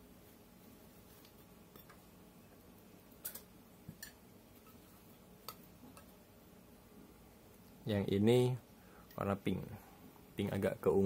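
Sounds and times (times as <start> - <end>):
small metal clicks and taps: 3.2 - 4.2.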